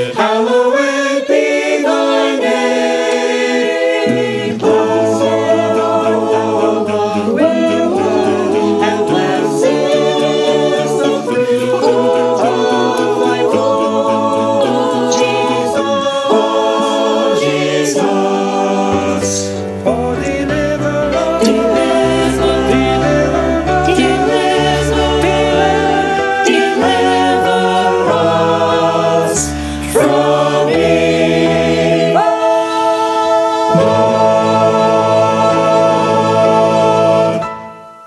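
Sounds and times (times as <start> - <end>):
choir singing a cappella: 0.0 - 38.0.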